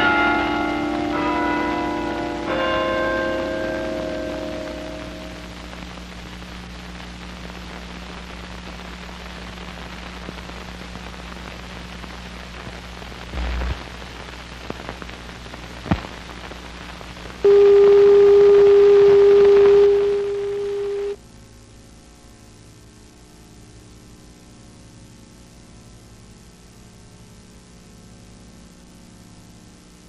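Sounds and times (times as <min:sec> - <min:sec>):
bell-like chord: 0:00.0 - 0:05.6
low mains hum: 0:00.0 - 0:30.0
tape hiss: 0:00.0 - 0:30.0
loud steady tone: 0:03.2 - 0:06.0, 0:13.3 - 0:14.2, 0:17.4 - 0:21.2
short low thump: 0:13.4 - 0:13.8.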